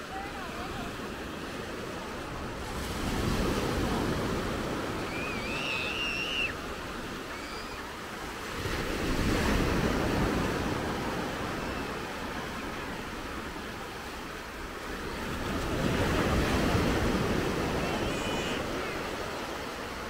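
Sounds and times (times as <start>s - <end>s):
small waves breaking on shore: 0.0s - 20.0s.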